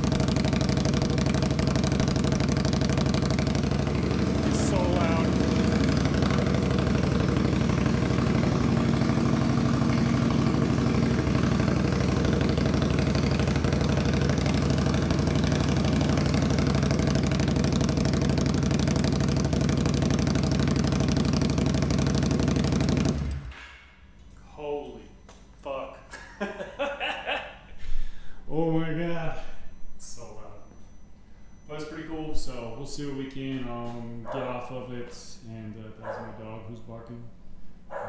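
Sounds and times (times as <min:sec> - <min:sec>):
motorcycle engine idling loudly: 0:00.0 - 0:23.5.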